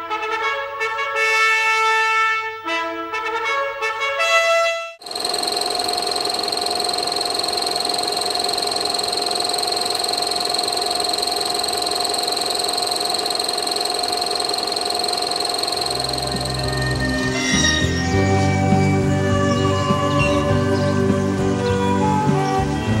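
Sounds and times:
film projector whirring: 5.0 - 18.0
high-pitched tones: 5.0 - 18.2.

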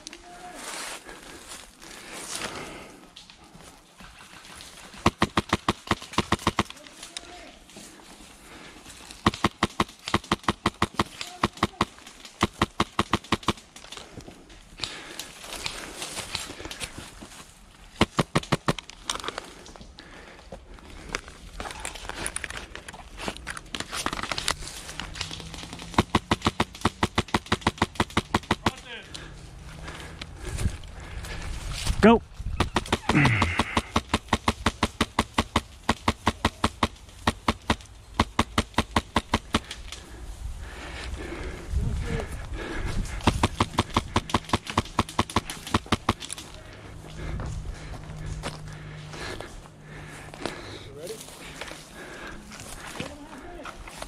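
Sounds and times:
airsoft rifle shots: 5.0 - 6.8, 9.2 - 13.7, 18.0 - 18.8, 25.9 - 28.9, 32.6 - 39.7, 43.2 - 46.4.

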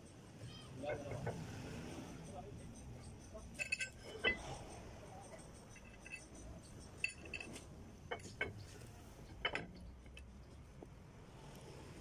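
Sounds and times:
small metal parts clinking: 2.6 - 10.6.

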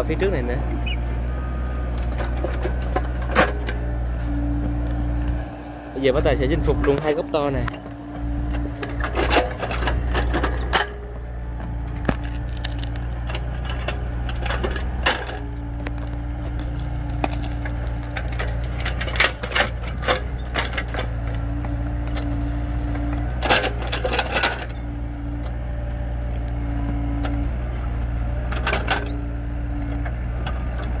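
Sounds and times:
excavator diesel engine: 0.0 - 31.0
roots cracking and snapping: 11.5 - 23.4.

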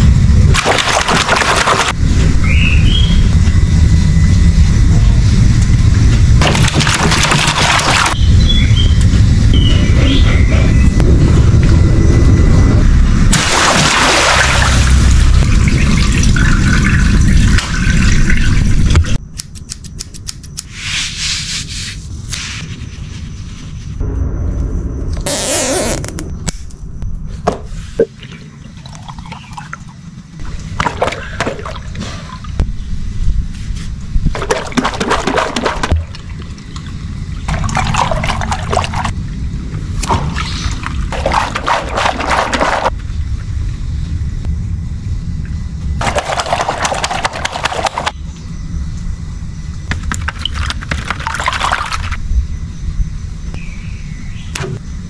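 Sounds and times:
hose water pouring and sloshing: 0.5 - 2.0, 6.4 - 8.2, 13.3 - 19.2, 30.5 - 32.6, 34.3 - 39.2, 40.0 - 43.0, 46.0 - 48.1, 50.0 - 52.2
water gushing and splashing: 0.5 - 2.0, 6.4 - 8.2, 13.3 - 19.2, 34.3 - 36.4, 37.4 - 39.2, 40.2 - 42.9, 46.0 - 48.1.

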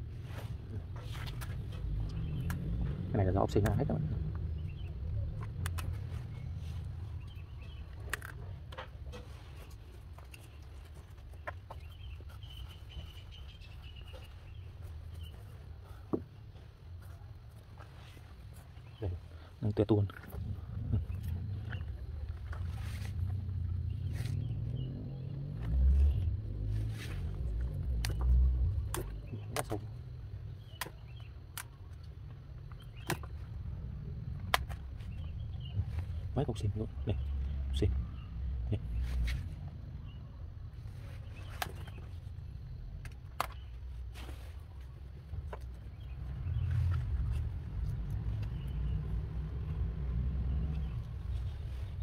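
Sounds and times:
low rumble: 0.0 - 11.4, 12.0 - 52.0
plants clicking and snapping: 0.9 - 6.5, 7.1 - 16.3, 25.4 - 37.8, 41.3 - 51.4
hand trowel scraping soil: 25.9 - 27.4.

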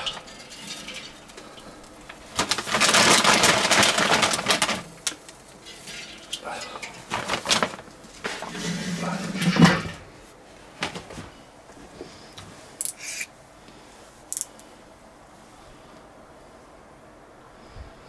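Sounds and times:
clattering and scraping handling: 0.0 - 10.2.

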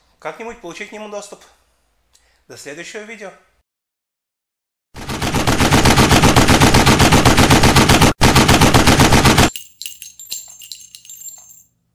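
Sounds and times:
automatic gunfire: 5.0 - 9.5
light metallic clinks: 9.5 - 11.9.

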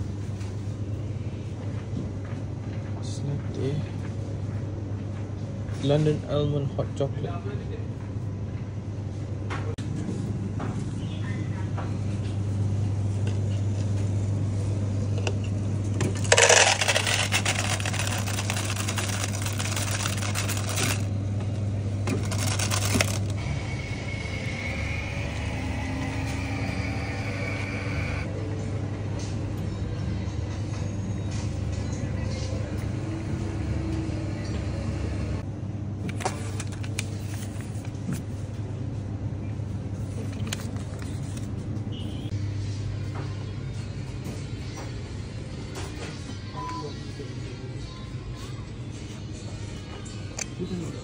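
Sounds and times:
coffee machine humming: 13.2 - 29.0, 32.0 - 37.9
coffee pouring over ice: 16.2 - 21.1, 22.2 - 23.3
ice cubes clattering into cup: 16.2 - 21.1, 22.2 - 23.3.

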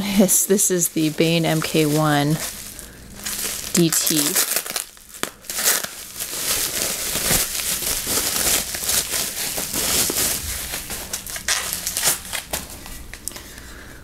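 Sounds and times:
bubble wrap crinkling: 0.0 - 13.8.

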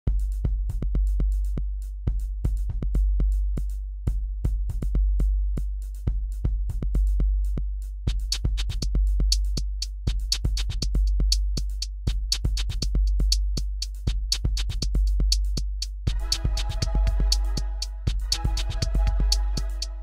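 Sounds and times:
electronic music with drum machine: 8.1 - 20.0
held synth chord: 16.1 - 20.0.

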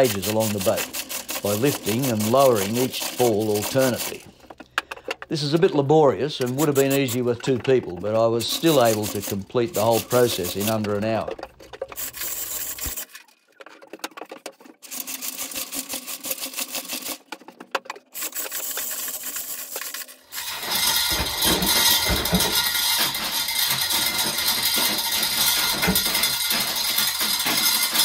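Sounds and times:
chain hoist ratchet clicks: 0.0 - 13.2, 14.8 - 17.3, 18.1 - 28.0
chain jangling rattle: 20.4 - 28.0.

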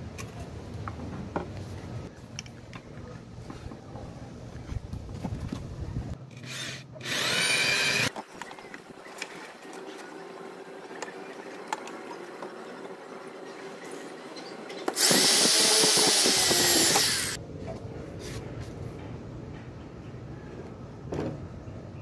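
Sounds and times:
electric drill boring plywood: 6.5 - 8.1, 14.9 - 17.4.

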